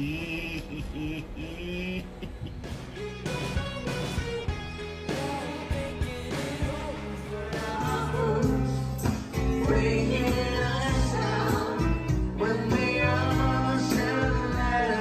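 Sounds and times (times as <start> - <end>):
live rock band playing: 2.7 - 15.0
person singing: 5.1 - 15.0.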